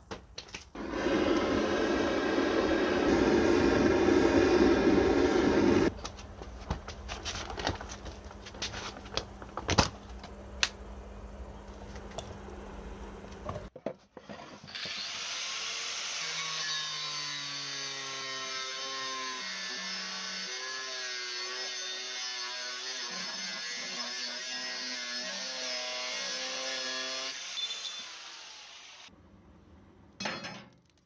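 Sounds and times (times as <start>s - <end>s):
angle grinder grinding steel: 14.7s - 29.1s.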